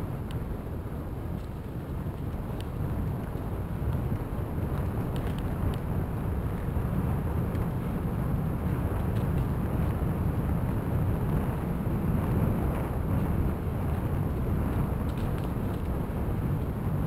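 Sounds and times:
wind buffeting microphone: 0.0 - 17.0
faint light ticks: 0.2 - 0.4, 1.3 - 5.9, 14.7 - 16.0
bicycle tyres on crushed stone: 0.4 - 17.0.

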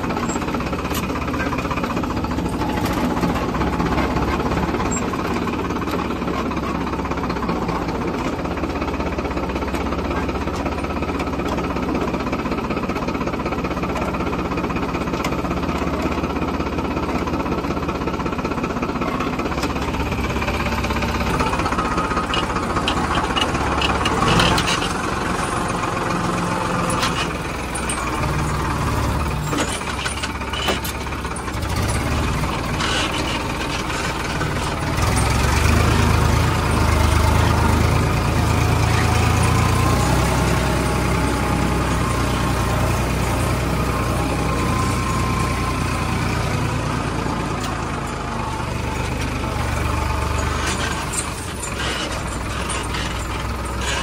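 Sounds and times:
diesel tractor engine idling: 0.0 - 54.0
metal clinks and knocks: 21.2 - 37.7, 49.9 - 54.0.

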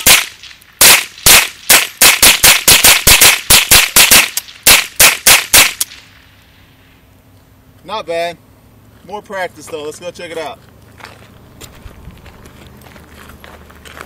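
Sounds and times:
rapid rifle fire: 0.0 - 6.0.

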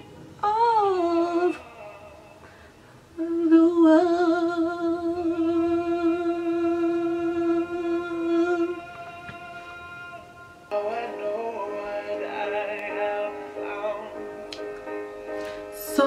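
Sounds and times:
woman singing: 0.4 - 2.1, 3.2 - 11.4, 15.8 - 16.0.

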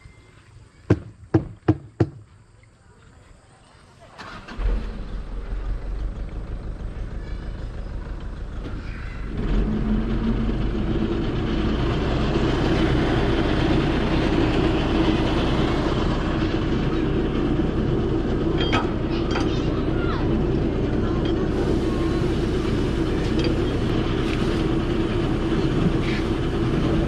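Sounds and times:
truck engine running: 4.2 - 27.0.

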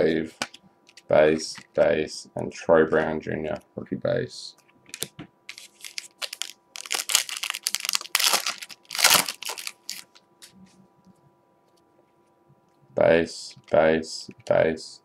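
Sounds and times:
card pack wrapper crinkling and tearing: 5.0 - 10.2.

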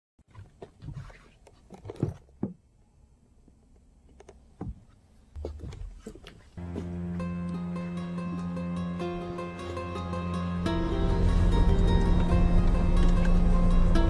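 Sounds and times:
music with sustained notes: 6.6 - 14.0.

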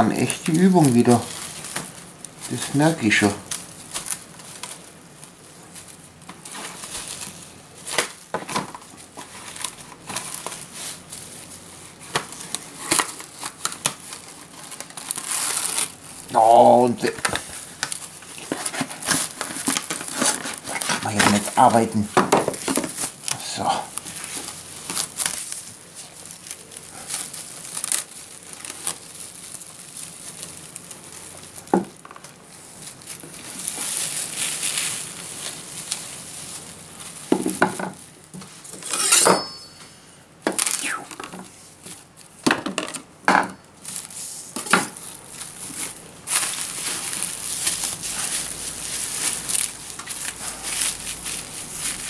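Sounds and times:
cling film crinkling and rustling: 0.0 - 38.9, 40.5 - 52.0
sharp knocks and clinks: 38.8 - 40.0.

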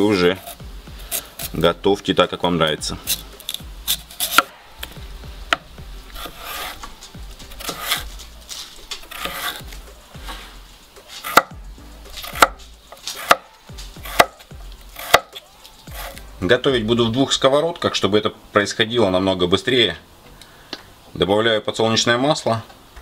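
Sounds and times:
knife slicing beetroot: 0.3 - 1.6, 3.0 - 16.3.

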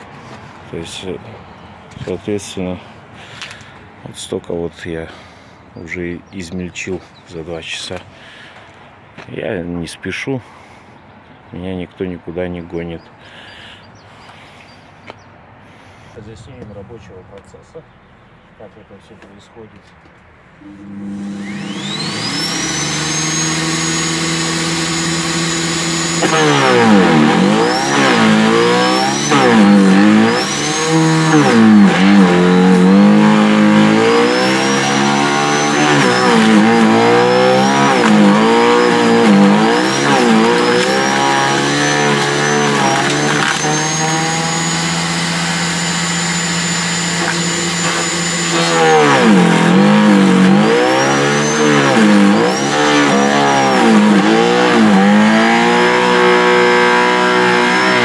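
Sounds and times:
garden shredder motor whine: 20.6 - 58.0
shredder chewing branches: 20.6 - 58.0.

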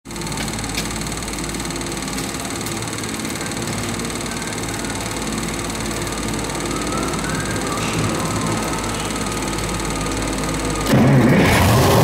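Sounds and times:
diesel engine running: 0.0 - 12.0.

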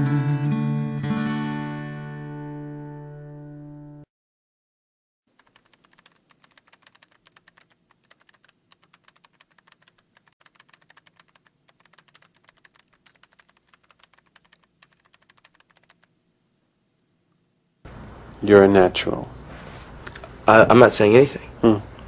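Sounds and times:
fast typing on computer keyboard: 5.3 - 16.1.

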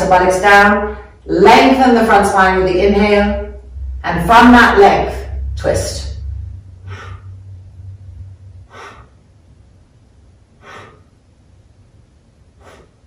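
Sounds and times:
woman breathing: 6.7 - 9.6, 10.4 - 11.4, 12.4 - 13.0.

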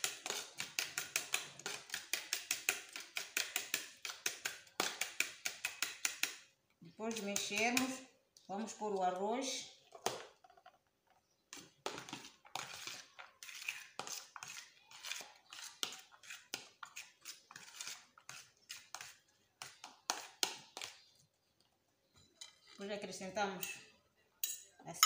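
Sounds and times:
metal spoon scraping plastic tub: 11.4 - 21.1.

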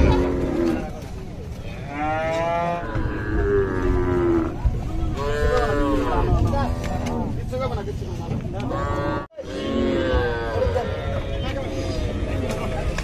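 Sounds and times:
cattle mooing: 1.9 - 4.6, 8.7 - 11.3.

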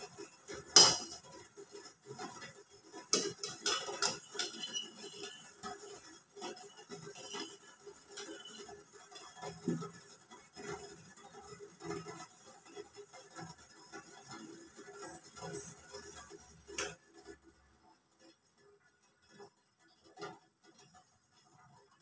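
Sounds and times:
metal lid clinking on pot rim: 0.8 - 1.2, 3.1 - 5.4.

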